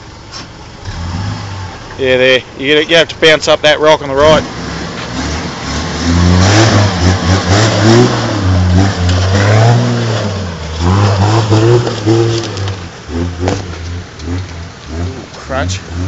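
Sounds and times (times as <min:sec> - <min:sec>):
engine revving: 0:00.3 - 0:16.0.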